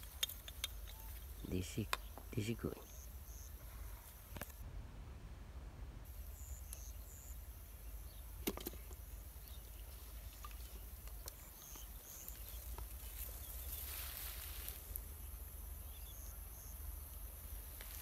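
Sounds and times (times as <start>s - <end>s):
sharp clicks: 0.0s - 1.0s
high insect buzz: 0.8s - 4.6s, 6.1s - 18.0s
low rumble: 4.6s - 6.0s.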